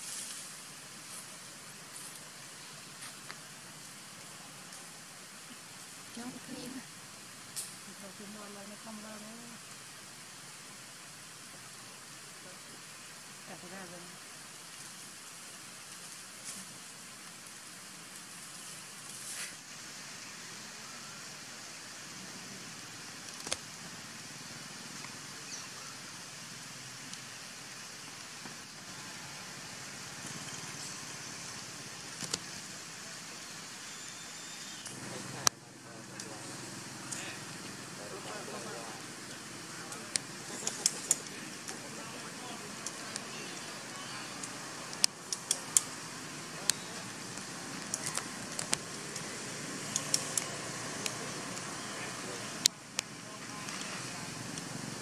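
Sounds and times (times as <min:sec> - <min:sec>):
outdoor background hiss: 0:00.0 - 0:55.0
sharp clicks and crackles: 0:23.2 - 0:23.7, 0:32.1 - 0:32.6, 0:39.9 - 0:41.8, 0:44.4 - 0:46.0, 0:46.7 - 0:51.7.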